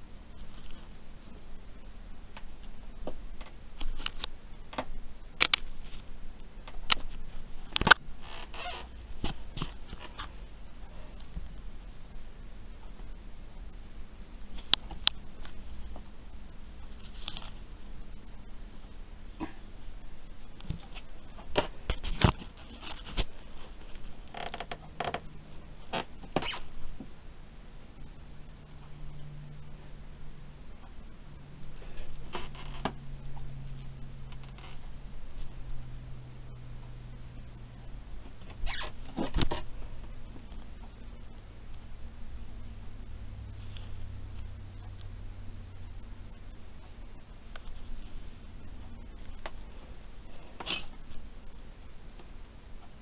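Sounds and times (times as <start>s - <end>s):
scraping rustles: 20.4s - 27.0s.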